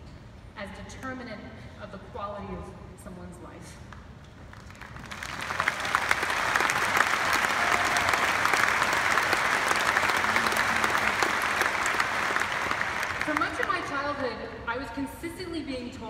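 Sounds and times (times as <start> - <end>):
crowd applauding: 4.5 - 14.0.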